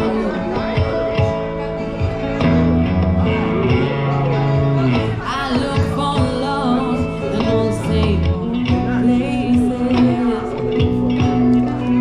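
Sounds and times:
guitar: 0.0 - 12.0
person singing: 4.9 - 12.0.

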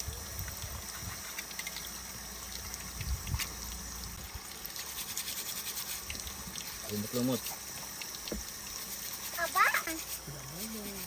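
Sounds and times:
water sloshing in a wok: 0.0 - 11.0.

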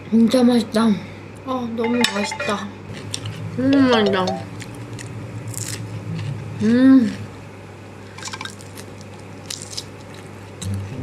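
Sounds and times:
crunchy chewing: 2.9 - 3.5, 4.6 - 7.3, 8.4 - 10.8
person humming mmm: 10.6 - 11.0.

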